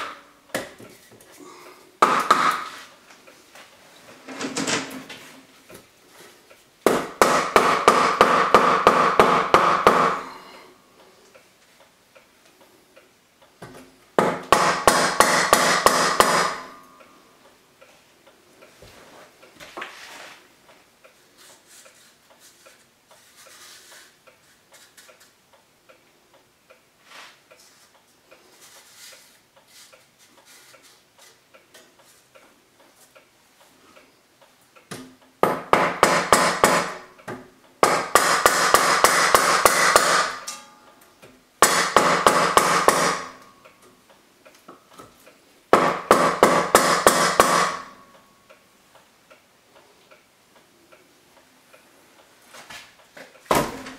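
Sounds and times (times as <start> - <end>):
hammer tapping wooden board: 2.0 - 2.8, 6.8 - 10.3, 13.6 - 16.8, 34.9 - 40.4, 41.6 - 43.4, 45.7 - 48.0.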